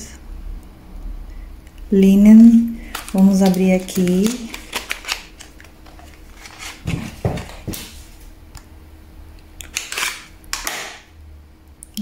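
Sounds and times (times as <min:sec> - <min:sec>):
paperboard box rustling and tapping: 0:05.9 - 0:07.9.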